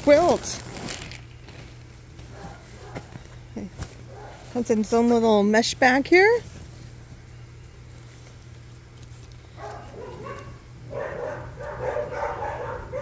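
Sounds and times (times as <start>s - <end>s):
dogs barking: 2.2s - 3.2s, 4.0s - 4.6s, 9.6s - 13.0s.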